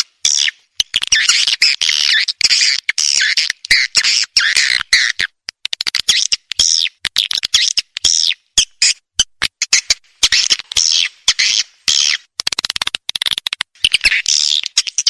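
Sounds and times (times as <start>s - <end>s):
rapid sharp clicks: 5.4s - 6.1s, 12.3s - 13.8s.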